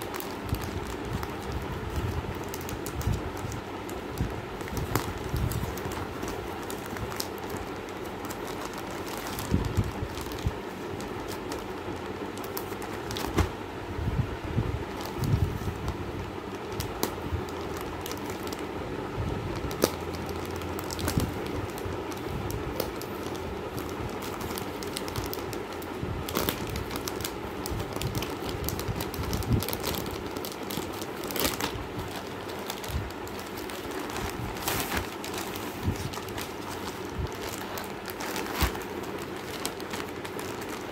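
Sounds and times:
plastic packaging crinkling: 0.0 - 13.6, 14.8 - 18.8, 19.4 - 40.9
steady background hum: 0.0 - 40.9.

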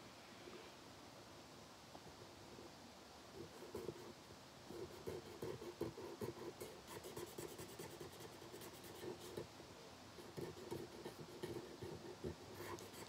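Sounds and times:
marker scribbling on velvet: 4.7 - 9.5, 10.2 - 13.0.

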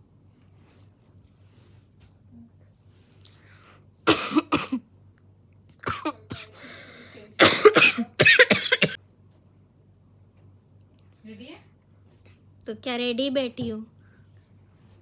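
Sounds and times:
woman coughing: 4.0 - 4.9, 5.8 - 6.7, 7.3 - 9.0.

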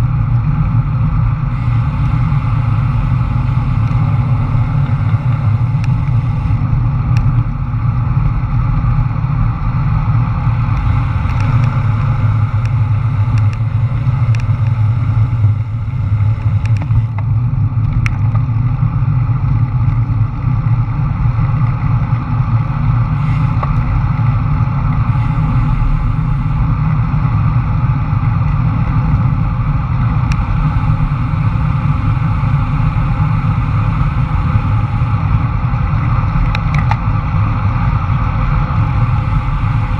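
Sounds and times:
wind buffeting microphone: 0.0 - 39.9
faint ticks: 10.7 - 14.8.

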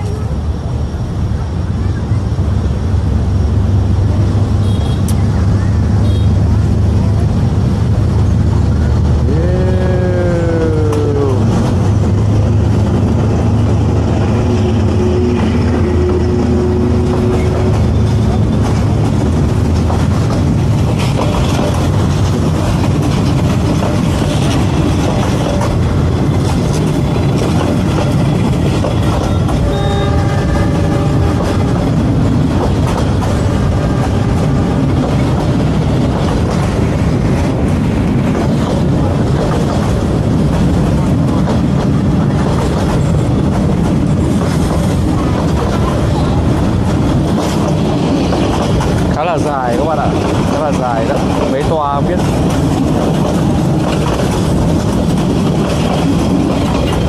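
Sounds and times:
diesel locomotive engine rumble: 0.0 - 57.0
train wheels rolling on rails: 0.0 - 57.0
train horn blast: 4.6 - 5.1, 14.3 - 18.4, 29.3 - 32.0, 33.3 - 35.0.

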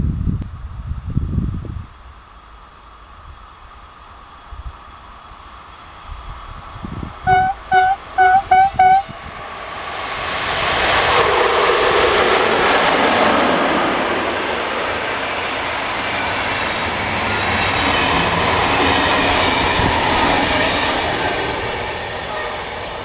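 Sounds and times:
train coaches rolling past: 4.1 - 23.0
train horn toots: 7.3 - 9.2, 22.2 - 22.8.

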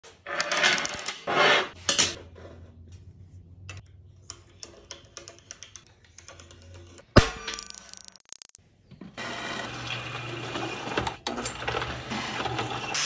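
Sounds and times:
metal scraping on steel table: 0.1 - 1.8.

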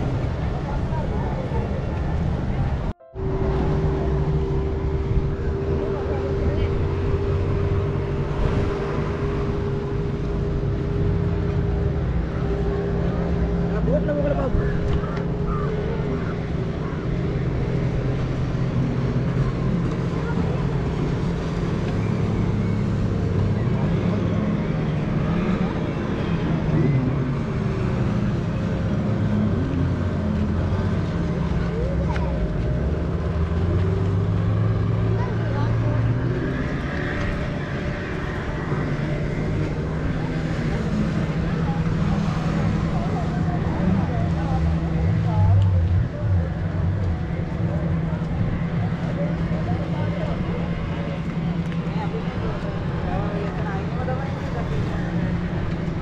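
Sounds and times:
motorboat engine droning: 0.0 - 56.0
steady rushing water: 0.0 - 56.0.

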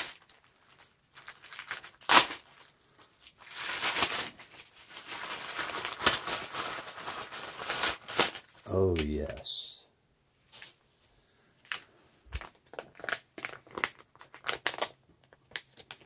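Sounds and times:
packaging crinkling and rustling: 0.0 - 9.4, 11.6 - 16.0.

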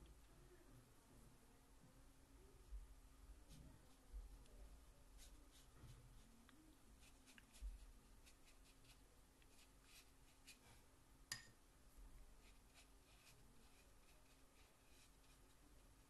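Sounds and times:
brush strokes on paper: 5.1 - 10.9, 12.4 - 16.0.

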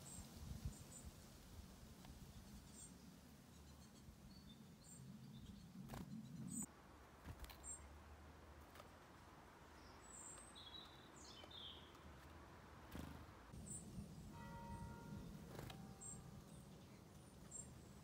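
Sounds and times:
high bird chirps: 13.0 - 18.0.

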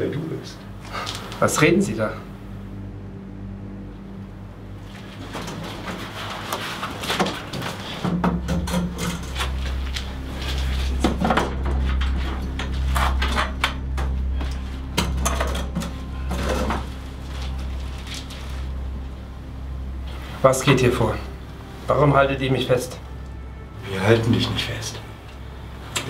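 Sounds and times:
deep drone: 0.0 - 26.0
hard objects clanking and knocking: 7.1 - 9.8, 11.0 - 17.0.

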